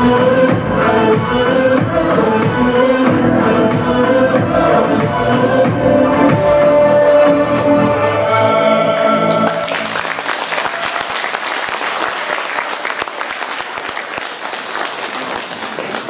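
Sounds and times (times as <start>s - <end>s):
dance music: 0.0s - 9.9s
audience applauding: 9.0s - 16.0s.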